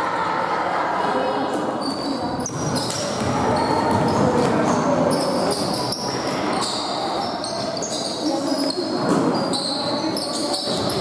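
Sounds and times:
murmur of voices: 0.0s - 11.0s
shoes squeaking: 1.8s - 11.0s
basketball bouncing: 2.4s - 5.8s.

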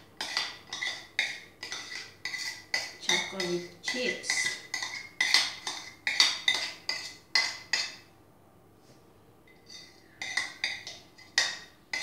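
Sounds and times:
spoon scraping bowl: 0.2s - 8.0s, 9.5s - 12.0s.

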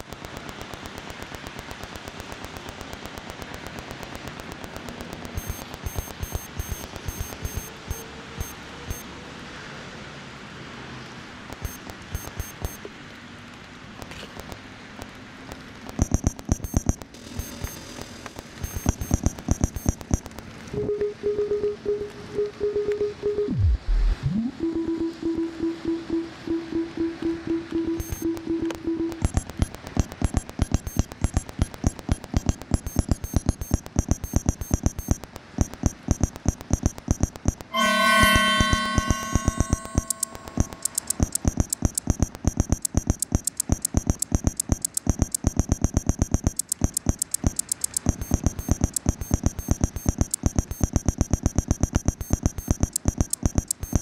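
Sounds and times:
steady electronic hiss: 0.0s - 7.6s, 16.4s - 20.6s
sharp electronic clicks: 0.0s - 9.1s, 11.4s - 12.9s, 14.0s - 20.7s, 25.3s - 54.0s
short high beeps: 5.4s - 9.1s, 11.6s - 12.8s, 16.0s - 17.9s, 18.6s - 20.3s, 25.3s - 54.0s
held synthesizer chord: 37.7s - 41.1s.

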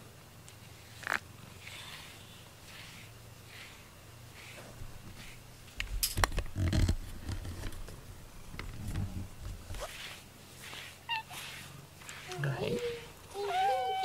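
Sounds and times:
cat brushing against camera: 0.8s - 5.4s, 8.9s - 13.1s.

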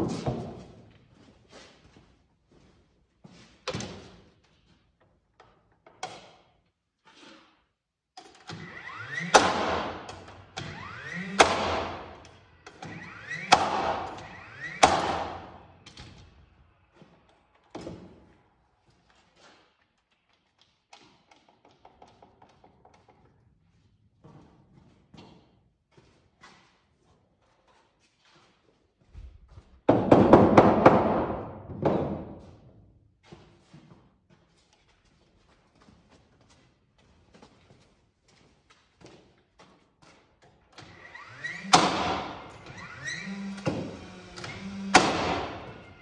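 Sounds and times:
nail gun shots: 8.5s - 16.2s, 41.5s - 45.9s.

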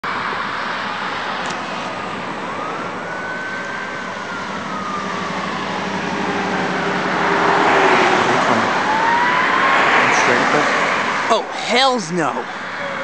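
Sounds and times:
road traffic noise: 0.0s - 13.0s
siren wailing: 0.1s - 13.0s.

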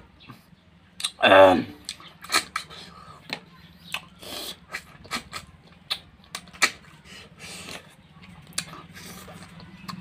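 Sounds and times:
wet lip smacks and chewing: 1.8s - 7.0s, 7.6s - 10.0s.

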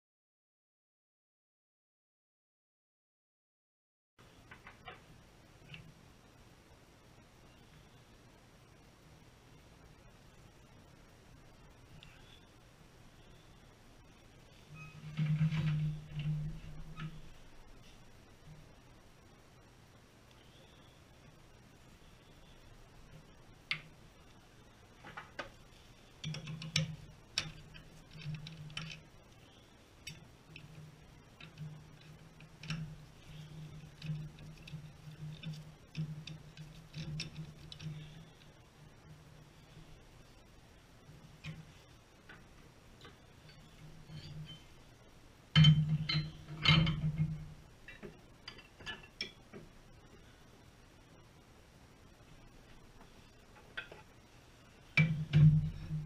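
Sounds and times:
tools clicking and tapping: 26.2s - 29.1s, 45.6s - 49.7s
metal clanking: 45.5s - 49.4s, 55.0s - 56.0s.

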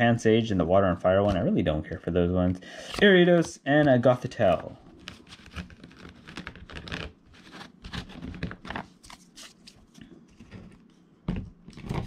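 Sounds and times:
cards and foil crinkling: 5.0s - 10.7s.

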